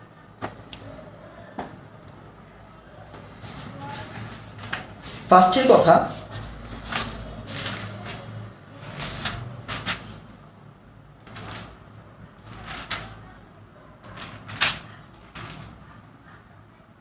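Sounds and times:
scrapes and knocks of handling: 3.0 - 10.4, 11.2 - 13.4, 14.0 - 16.0.

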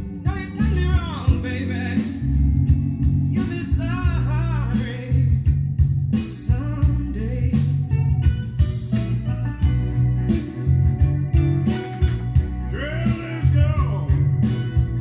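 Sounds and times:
song with singing and heavy bass: 0.0 - 15.0.

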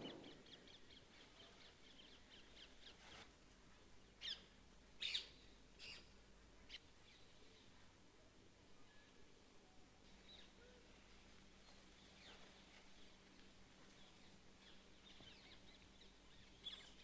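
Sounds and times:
birds chirping: 0.0 - 3.1, 13.8 - 17.0
bird calls: 4.2 - 6.1.

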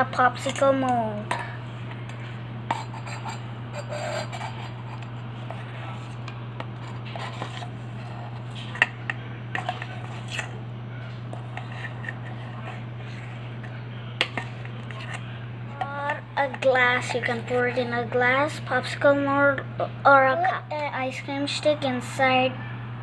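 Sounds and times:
metal spoon scraping ice cream: 2.1 - 10.6, 11.3 - 19.0.

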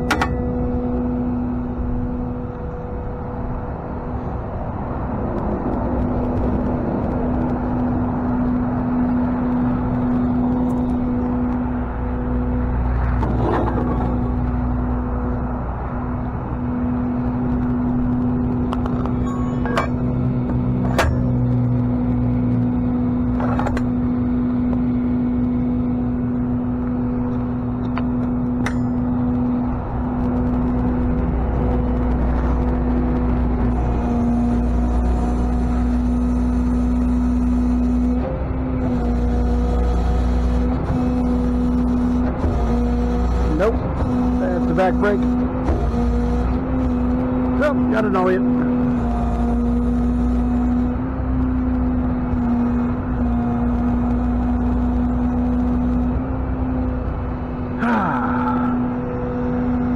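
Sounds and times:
sharp clicks or knocks: 0.0 - 0.5
road noise: 0.0 - 59.9
truck engine drone: 0.0 - 59.9.

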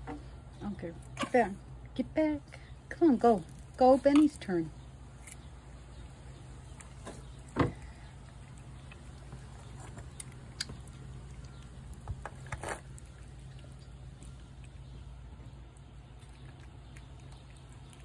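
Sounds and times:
cat chewing wet food: 5.5 - 18.0.

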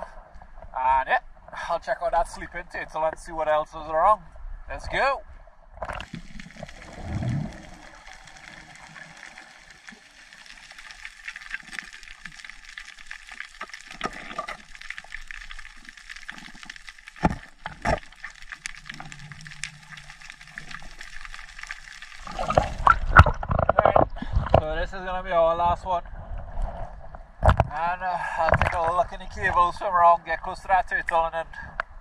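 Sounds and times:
water gurgle: 5.7 - 24.7, 27.4 - 31.2
underwater crackling hiss: 5.9 - 17.1.

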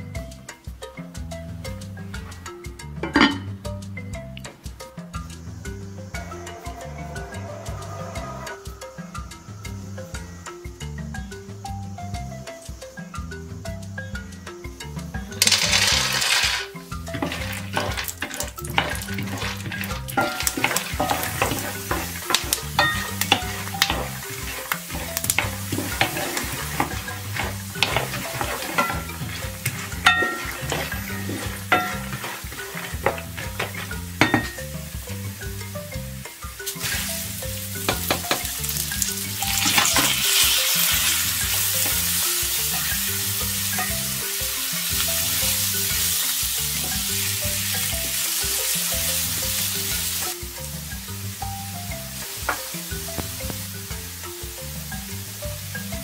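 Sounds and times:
rice sizzling in hot oil: 14.8 - 56.0
wooden spoon stirring in a pan: 15.4 - 35.7, 36.7 - 44.2.

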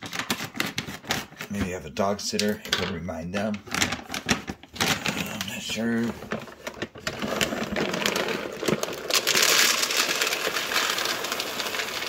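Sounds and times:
kibble rattling into plastic hopper: 7.0 - 12.0.

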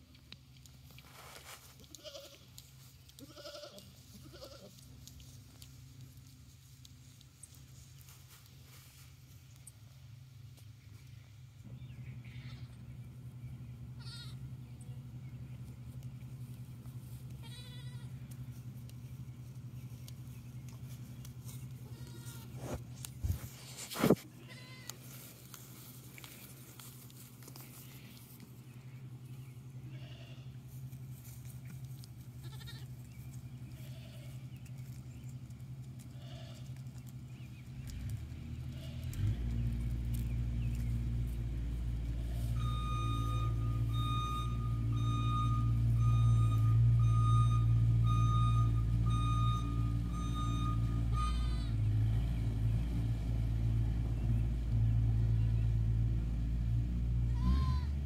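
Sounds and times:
goats bleating: 1.8 - 4.8, 12.2 - 12.8, 14.0 - 14.4, 17.3 - 18.3, 21.8 - 22.8, 24.3 - 25.0, 29.8 - 30.6, 32.4 - 33.0, 33.6 - 34.4, 36.0 - 36.8, 38.7 - 39.2, 51.1 - 51.8, 57.3 - 58.0
vehicle engine running: 2.0 - 58.0
reversing alarm beeping: 42.5 - 51.7.

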